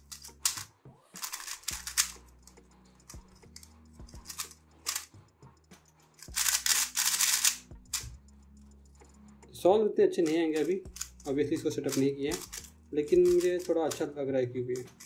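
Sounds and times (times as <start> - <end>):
plastic puzzle cube clacking: 0.0 - 2.4, 3.0 - 5.1, 6.2 - 8.1, 10.2 - 14.0, 14.8 - 15.0.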